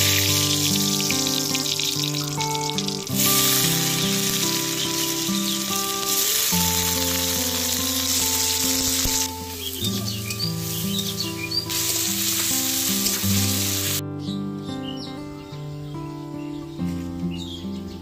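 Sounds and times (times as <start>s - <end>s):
onions sizzling in hot oil: 0.0s - 14.0s
background music: 0.0s - 18.0s.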